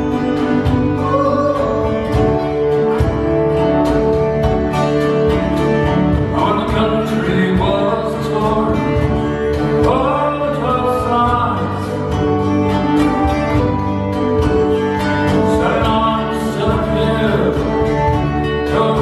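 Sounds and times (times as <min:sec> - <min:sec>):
person singing: 0:00.0 - 0:03.2, 0:06.1 - 0:13.8, 0:15.1 - 0:19.0
folk band playing: 0:00.0 - 0:19.0
plucked mandolin: 0:00.0 - 0:19.0
strummed guitar: 0:00.0 - 0:19.0.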